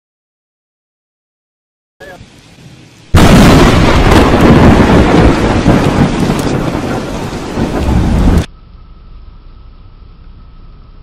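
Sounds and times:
rain: 2.0 - 11.0
thunder crackles: 2.6 - 8.5
rumbling thunder: 3.1 - 8.5.

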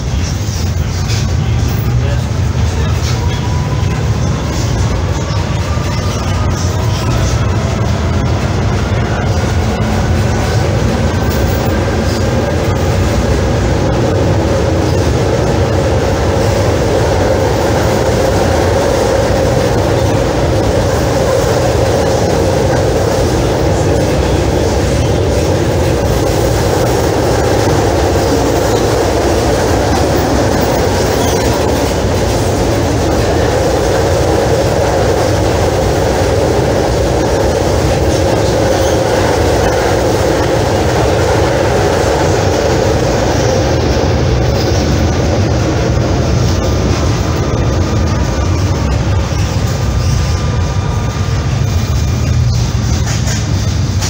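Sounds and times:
tram wheels rumbling on rails: 0.0 - 54.0.

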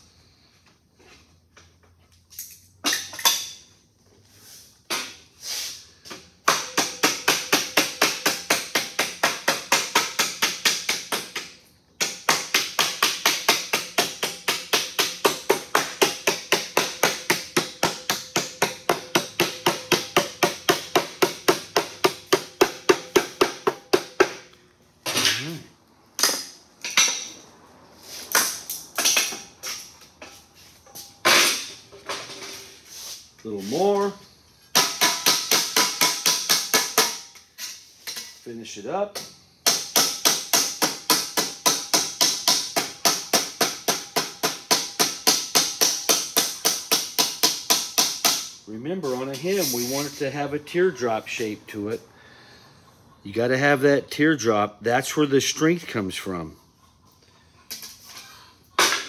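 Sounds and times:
rubber mallet tapping sheet metal: 6.5 - 24.4, 34.7 - 37.3, 39.6 - 48.6.

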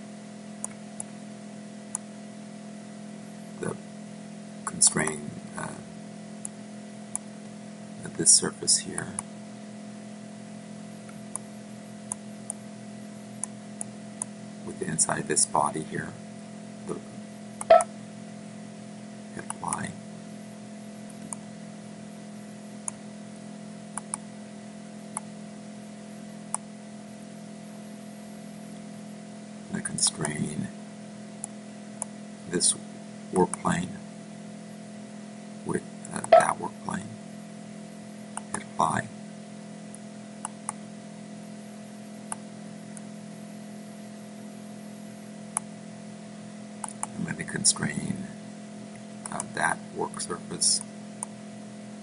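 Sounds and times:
steady low hum: 0.0 - 52.0
computer mouse clicking: 23.9 - 24.2, 46.8 - 47.2, 49.2 - 49.5.

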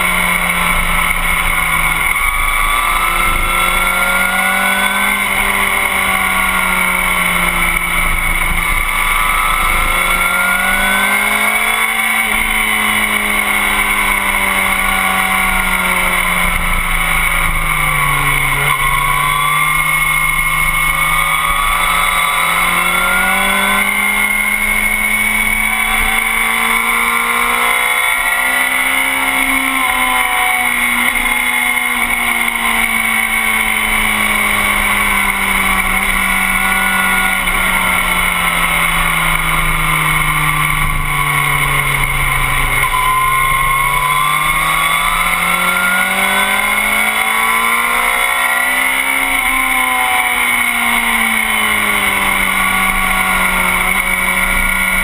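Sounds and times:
motorcycle engine running hard: 0.0 - 55.0
steady rushing noise: 0.0 - 55.0.

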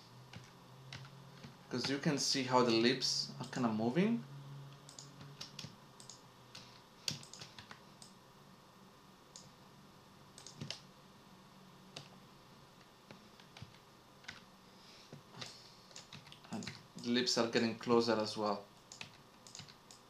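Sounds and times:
low steady hum: 0.0 - 20.0
computer keyboard and mouse clicks: 0.3 - 2.0, 4.7 - 8.2, 10.4 - 10.8, 12.0 - 12.2, 13.1 - 14.5, 15.4 - 17.1, 18.8 - 20.0.

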